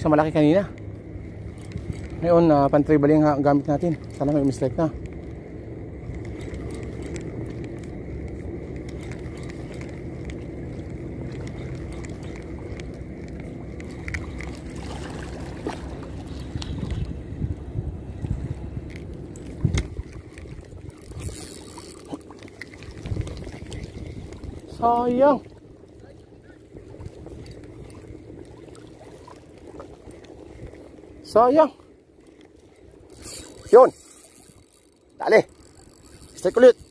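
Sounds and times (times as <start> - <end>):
water and wind rumble: 0.0 - 36.9.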